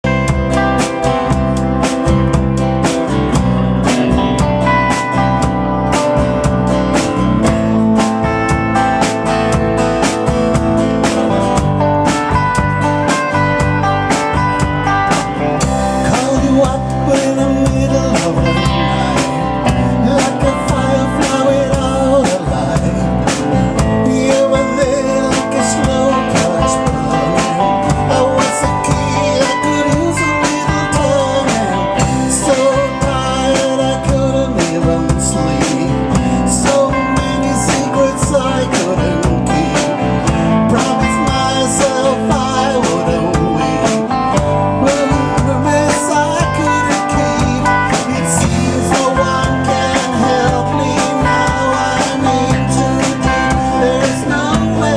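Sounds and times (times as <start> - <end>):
live rock band playing: 0.0 - 54.9
man singing: 14.9 - 54.9.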